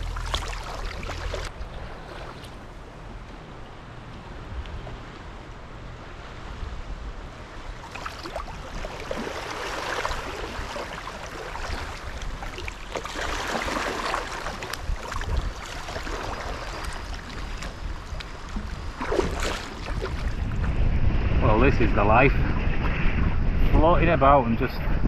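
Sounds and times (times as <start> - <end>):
paddle splashing in water: 0.0 - 3.0, 7.8 - 20.7
wind rumble on microphone: 0.0 - 25.0.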